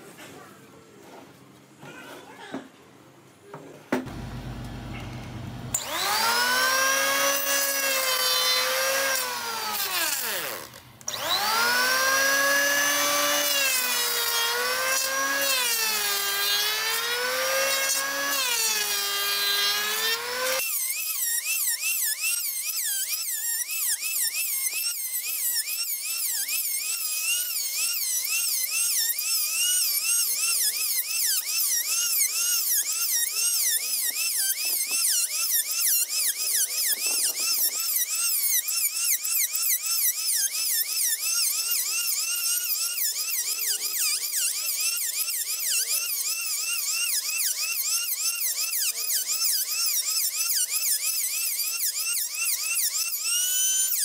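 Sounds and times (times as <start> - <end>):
electric planer cutting wood: 4.1 - 20.6.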